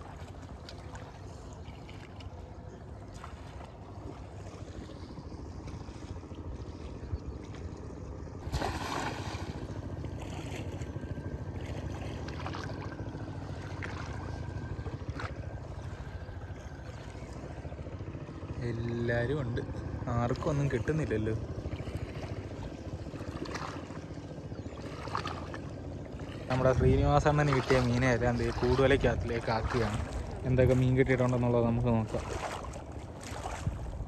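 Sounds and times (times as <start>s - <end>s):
low water noise: 0.0s - 34.0s
wind: 0.0s - 34.0s
cast net splashing into water: 8.4s - 10.8s, 32.1s - 33.8s.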